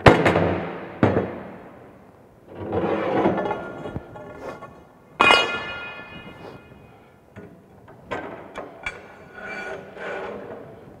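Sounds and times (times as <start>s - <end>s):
metal pipe scraping and rattling: 2.5s - 7.0s, 8.1s - 11.0s
metal pipe clanging: 5.2s - 6.8s.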